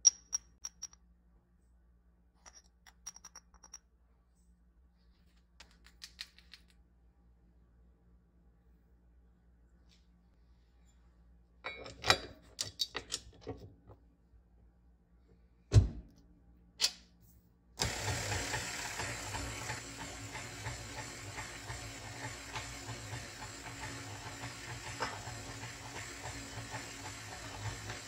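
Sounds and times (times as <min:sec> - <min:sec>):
stand mixer motor running: 0:17.8 - 0:28.0.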